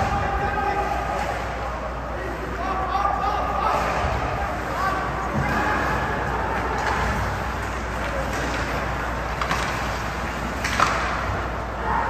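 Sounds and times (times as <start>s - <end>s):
low hum in ice rink: 0.0s - 12.0s
hockey stick knocking puck: 8.0s - 11.4s.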